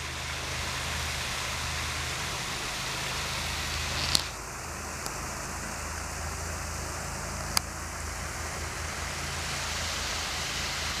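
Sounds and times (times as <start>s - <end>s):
waterfall rushing: 0.0s - 11.0s
sharp click: 3.9s - 4.4s.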